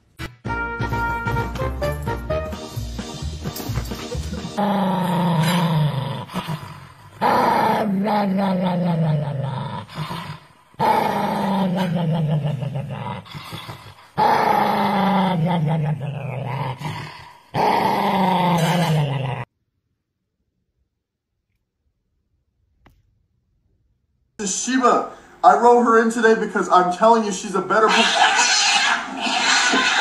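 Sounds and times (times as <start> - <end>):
dog growling: 4.3 - 19.5, 27.8 - 30.0.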